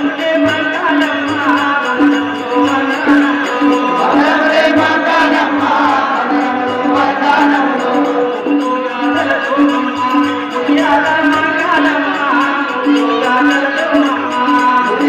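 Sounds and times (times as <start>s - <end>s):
men singing a chant-like prayer: 0.0s - 15.0s.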